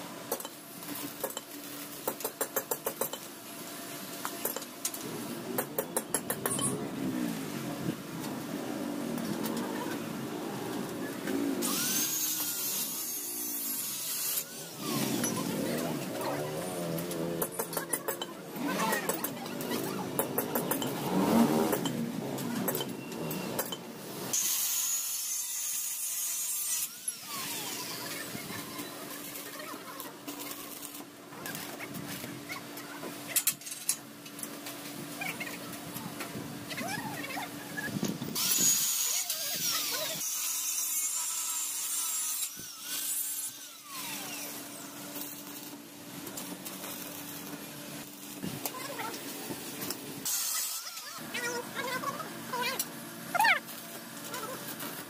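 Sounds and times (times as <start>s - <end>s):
angle grinder cutting steel: 11.6s - 29.5s, 38.4s - 45.8s, 50.2s - 51.1s.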